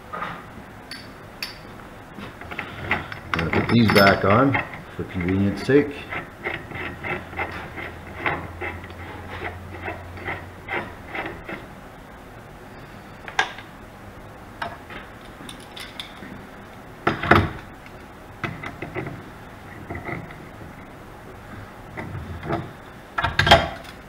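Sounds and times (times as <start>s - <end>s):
pliers clattering: 15.2s - 16.3s.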